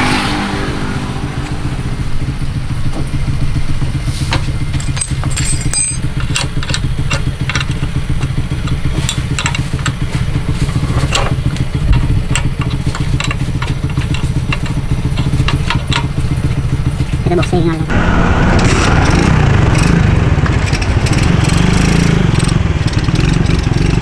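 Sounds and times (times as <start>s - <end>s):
motorcycle engine idling: 1.9s - 24.0s
spanner clicking on metal: 4.8s - 10.0s, 11.9s - 16.1s.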